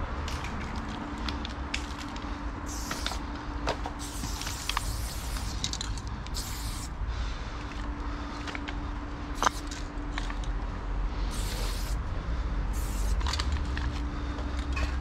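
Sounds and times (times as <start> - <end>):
low steady rumble: 0.0 - 15.0
spray paint can hissing: 2.7 - 3.2, 4.0 - 6.9, 9.4 - 9.8, 11.3 - 12.0, 12.7 - 13.3.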